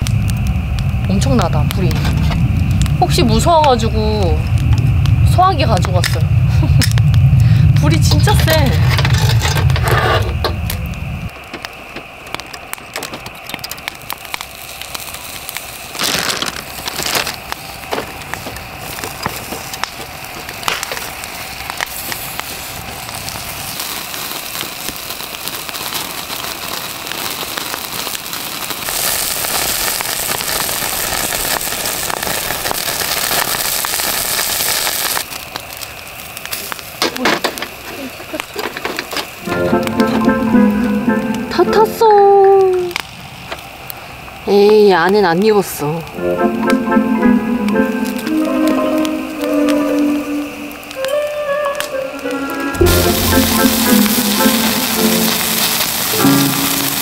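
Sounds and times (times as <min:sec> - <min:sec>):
meat grilling: 0:00.0 - 0:43.9, 0:46.4 - 0:57.0
fire hissing: 0:00.0 - 0:57.0
wood fire crackling and popping: 0:00.0 - 0:57.0.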